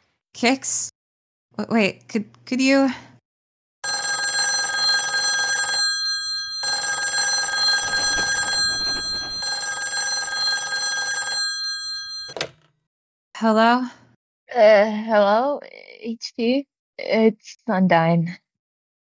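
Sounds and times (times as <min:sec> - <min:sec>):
telephone ringing: 0:03.8 - 0:12.5.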